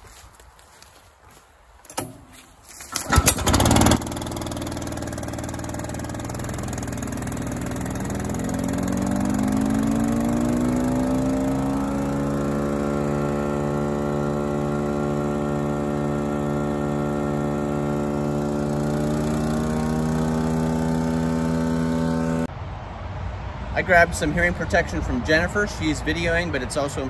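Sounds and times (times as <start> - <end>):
wood chipper running: 1.9 - 22.5
engine pull-started: 2.8 - 10.1.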